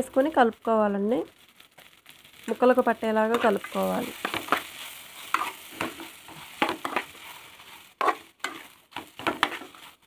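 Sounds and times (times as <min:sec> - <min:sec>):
frying sizzle: 0:00.0 - 0:10.0
metal spoon scraping metal pot: 0:03.3 - 0:10.0.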